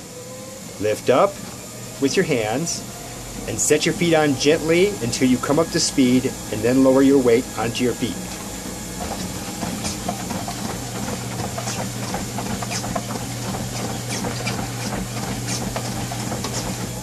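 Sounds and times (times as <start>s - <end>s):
treadmill motor hum and belt hiss: 0.0s - 17.0s
footfalls on treadmill belt: 8.2s - 17.0s.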